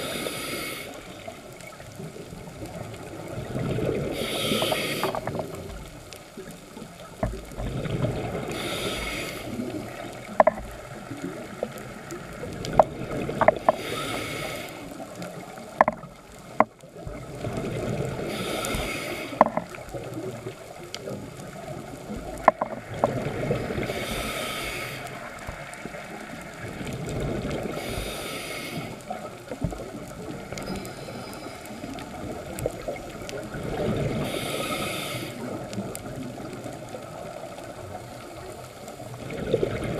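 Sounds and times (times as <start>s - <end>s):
scuba regulator inhalation hiss: 0.0s - 1.3s, 4.0s - 5.6s, 8.3s - 10.4s, 13.5s - 15.5s, 18.1s - 19.7s, 23.5s - 25.4s, 27.7s - 29.3s, 34.0s - 35.6s.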